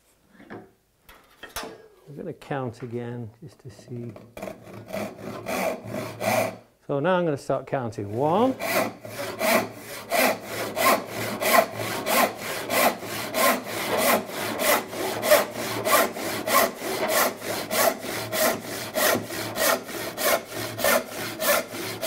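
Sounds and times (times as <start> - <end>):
handsaw ripping a board: 8.5 - 22.0.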